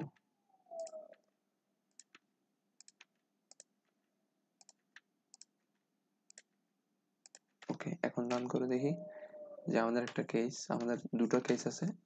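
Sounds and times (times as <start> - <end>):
keyboard and mouse clicks: 0.0 - 1.3, 1.9 - 4.0, 4.6 - 6.6, 7.2 - 9.0, 9.9 - 11.7.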